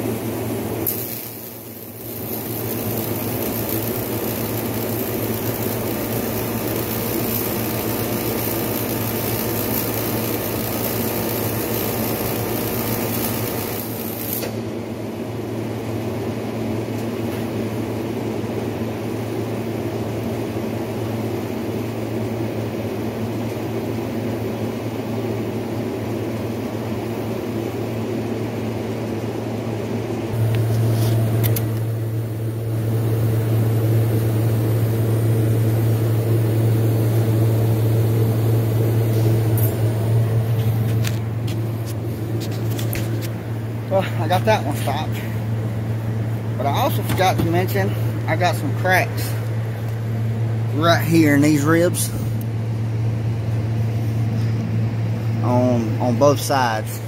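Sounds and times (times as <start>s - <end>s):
welding arc hissing and crackling: 0.0s - 14.6s, 30.4s - 50.0s
steady low hum: 0.0s - 57.0s.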